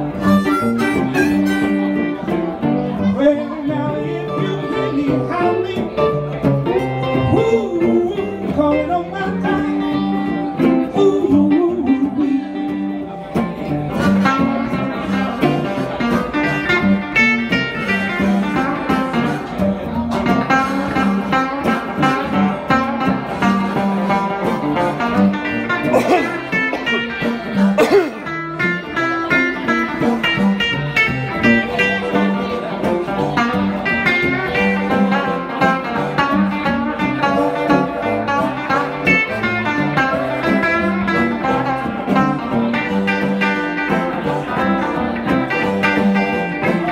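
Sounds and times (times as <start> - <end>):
electric blues guitars: 0.0 - 46.9
harmonica wailing bent notes: 0.1 - 2.1.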